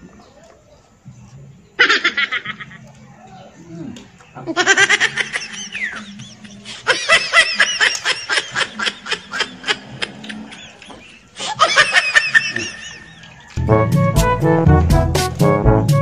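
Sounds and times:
high-pitched laughter: 1.8 - 2.9, 4.5 - 13.4.

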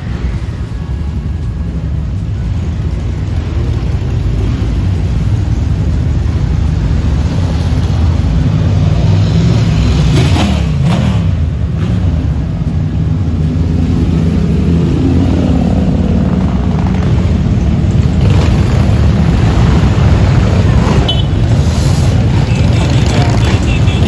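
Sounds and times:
motorcycle engines droning: 0.0 - 24.0.

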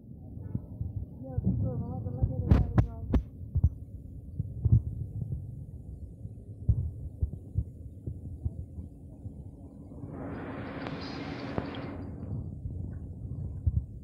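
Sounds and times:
wind buffeting microphone: 0.4 - 14.0.

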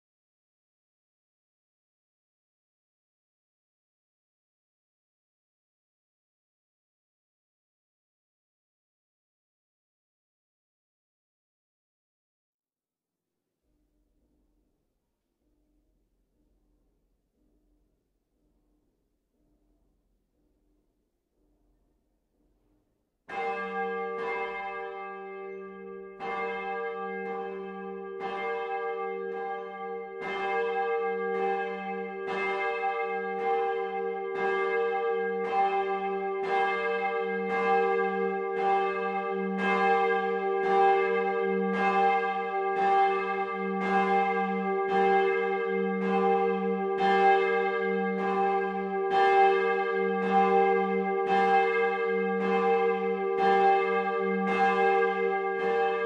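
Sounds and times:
swinging church bell ringing: 23.3 - 56.0.

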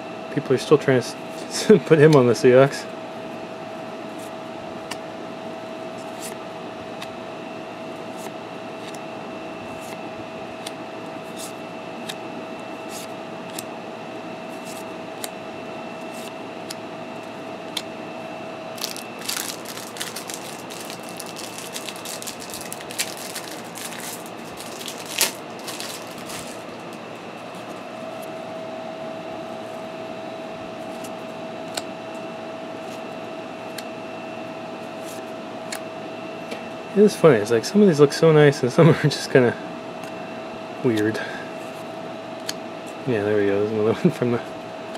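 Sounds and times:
steady hum with faint whine: 0.0 - 44.9
cards rustling and shuffling: 18.8 - 27.0
trading cards clicking and snapping: 18.8 - 27.0.

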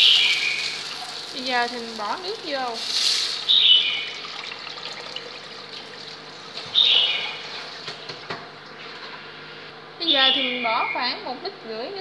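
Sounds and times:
water pouring into pot: 0.0 - 3.5, 4.1 - 6.3.

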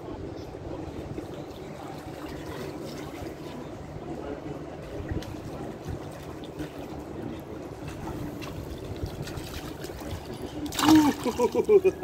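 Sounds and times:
water trickling and lapping: 1.1 - 12.0
hands slapping water: 9.2 - 11.7.

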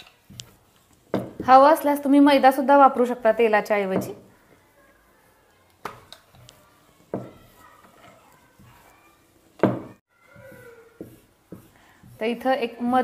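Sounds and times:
rolling pin knocking on board: 9.6 - 12.2.

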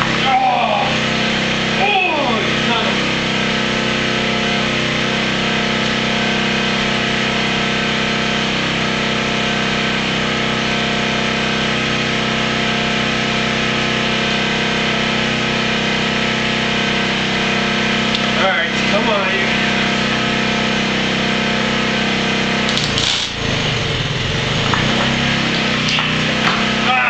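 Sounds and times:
small gasoline engine running: 0.0 - 27.0.

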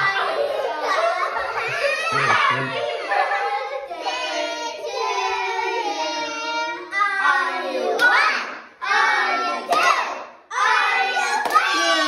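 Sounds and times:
children singing in unison: 0.0 - 12.0
hand claps: 11.4 - 11.8.

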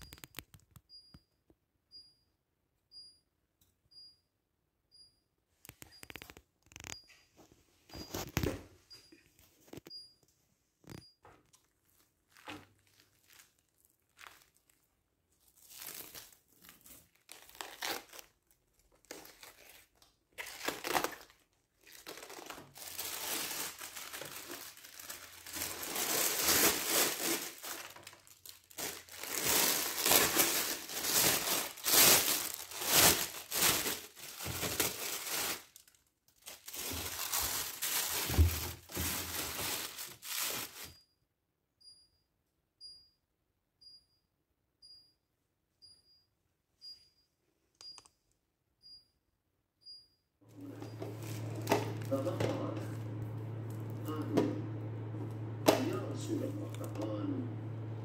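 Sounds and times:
plastic bags crinkling: 11.6 - 41.0, 50.5 - 58.0
handling noises: 22.1 - 35.6, 36.5 - 40.9, 50.5 - 57.2.

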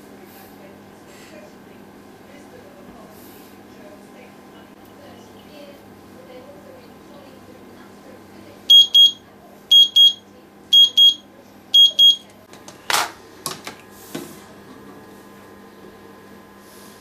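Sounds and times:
kitchen timer double beeps: 8.7 - 12.3.

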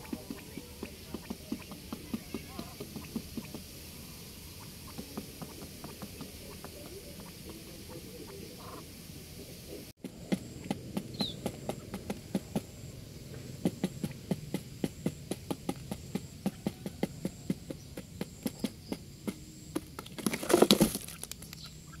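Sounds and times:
quail pecking on cardboard: 0.0 - 7.9, 10.0 - 12.8, 13.4 - 21.7
scuffling: 19.8 - 21.5.

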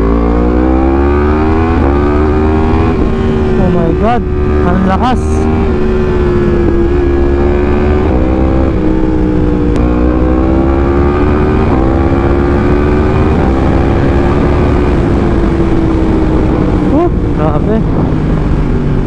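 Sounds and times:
low wind rumble: 0.0 - 19.0.

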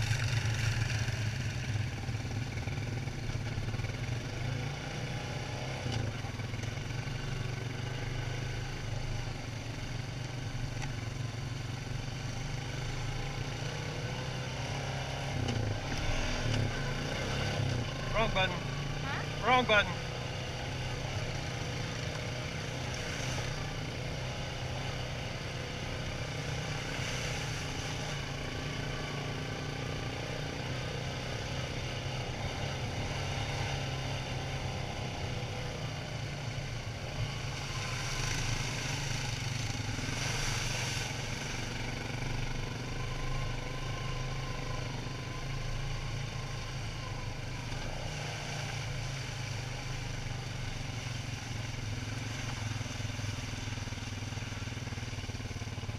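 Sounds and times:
quad engine droning: 0.0 - 55.9.

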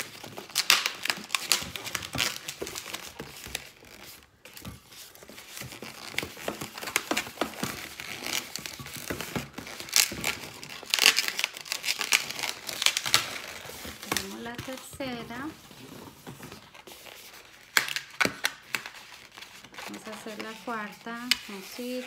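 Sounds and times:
balloons rubbing and squeaking: 0.0 - 17.8, 18.6 - 22.0.

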